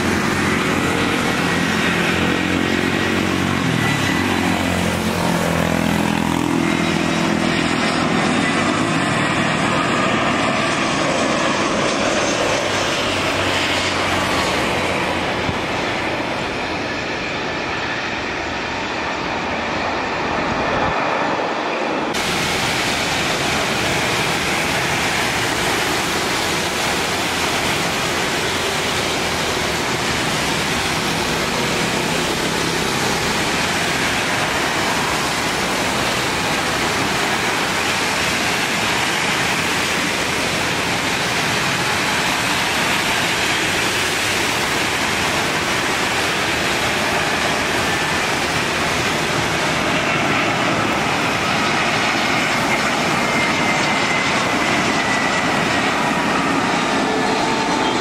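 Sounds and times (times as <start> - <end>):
heavy rain falling: 22.2 - 53.2.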